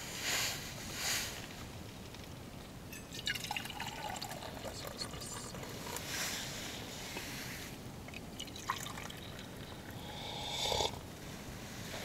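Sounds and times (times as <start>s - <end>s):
drink pouring into metal cup: 3.0s - 6.1s, 8.1s - 11.0s.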